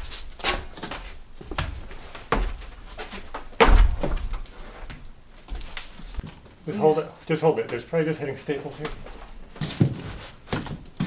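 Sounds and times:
ceiling panel knocks and thuds: 0.4 - 5.0.

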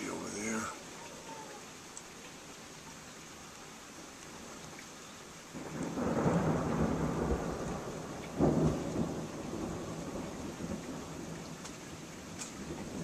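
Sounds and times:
steady rain: 0.0 - 13.0
thunder rumbling: 5.6 - 13.0.

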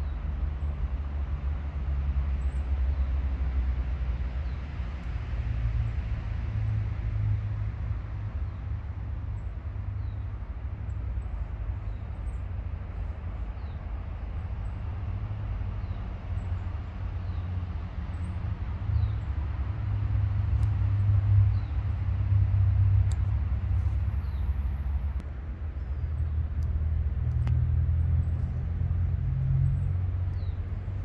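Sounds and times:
low outdoor rumble: 0.0 - 31.0
small birds chirping: 9.4 - 15.1, 15.7 - 19.5, 21.5 - 22.0, 23.1 - 31.0.

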